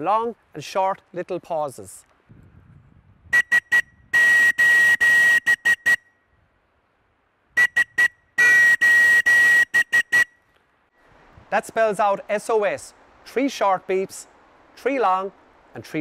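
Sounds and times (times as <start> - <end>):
whistle blasts: 3.3 - 6.4, 7.6 - 10.5.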